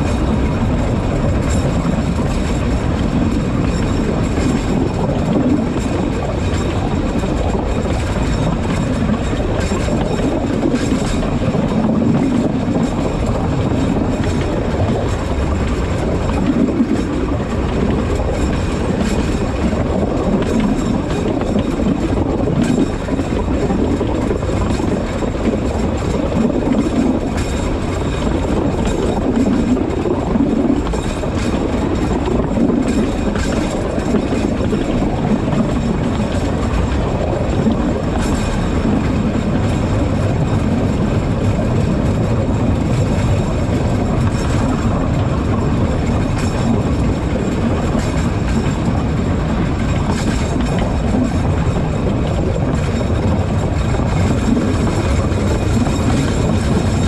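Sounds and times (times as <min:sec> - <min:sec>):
train wheels rumbling on rails: 0:00.0 - 0:57.0
wheels clicking on track: 0:00.0 - 0:57.0.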